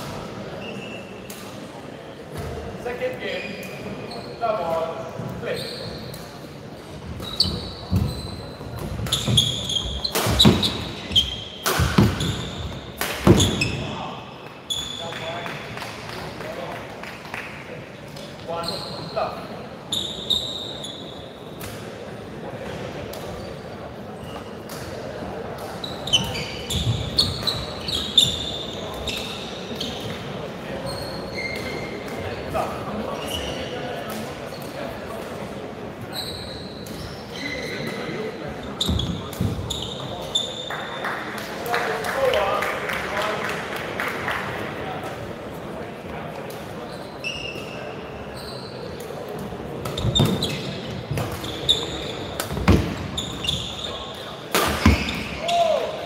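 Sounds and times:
shoes squeaking on court floor: 0.5s - 1.4s, 2.3s - 15.6s, 18.4s - 21.6s, 22.6s - 34.9s, 36.0s - 41.1s, 46.3s - 55.9s
racket hitting shuttlecock: 10.0s - 11.0s, 11.6s - 12.4s, 54.5s - 55.2s
rackets hitting shuttlecock: 10.0s - 12.4s, 49.8s - 53.1s, 54.5s - 55.4s.

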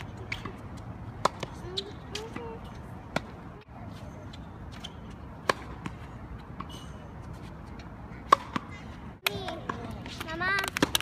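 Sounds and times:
racket striking tennis ball: 0.0s - 3.4s, 4.3s - 11.0s
ball bouncing on hard court: 1.2s - 3.4s.

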